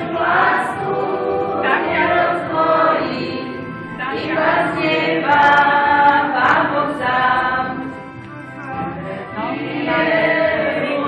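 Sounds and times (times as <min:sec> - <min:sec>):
group singing unaccompanied: 0:00.0 - 0:08.0, 0:08.7 - 0:11.0.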